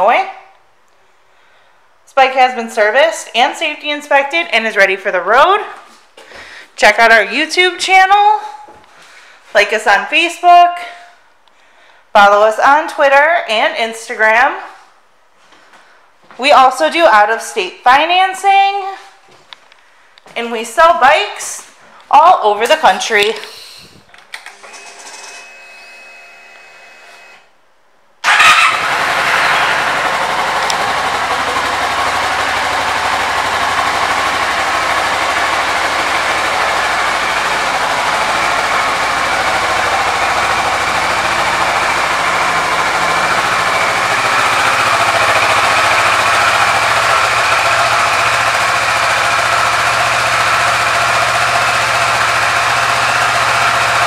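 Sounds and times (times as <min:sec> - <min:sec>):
motorcycle engine starting and idling: 0:28.2 - 0:54.0
faint ignition hum: 0:28.3 - 0:54.0.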